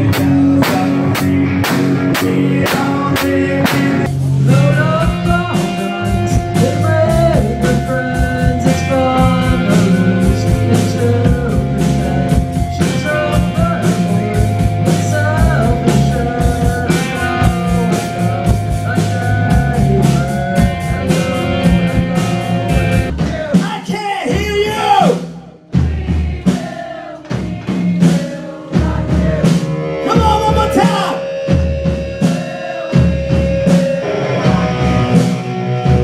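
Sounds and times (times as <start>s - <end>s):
electric guitar: 0.0s - 23.1s, 28.8s - 36.0s
bass guitar: 0.0s - 36.0s
drum kit beat: 0.0s - 36.0s
young person singing: 2.1s - 23.9s.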